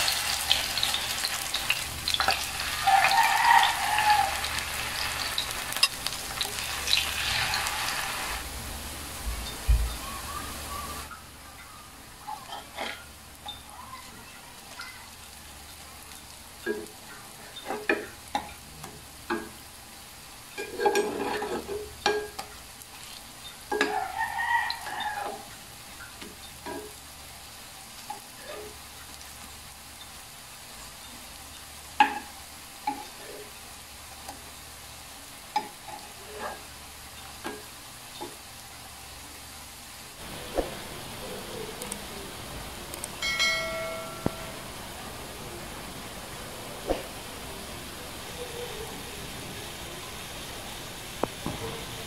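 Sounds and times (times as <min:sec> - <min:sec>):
spatula scraping a pan: 0:00.0 - 0:08.4, 0:20.6 - 0:25.5
pancakes sizzling in hot oil: 0:00.0 - 0:52.0.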